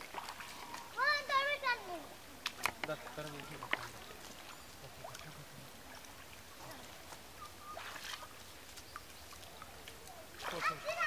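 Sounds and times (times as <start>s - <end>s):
hands splashing in pond water: 0.0s - 1.2s, 2.3s - 11.0s
loud water splash: 10.4s - 11.0s.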